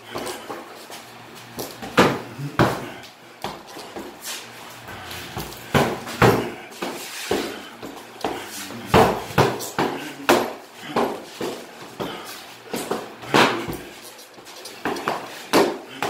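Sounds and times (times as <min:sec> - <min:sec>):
punches thudding on bags: 0:05.3 - 0:14.0.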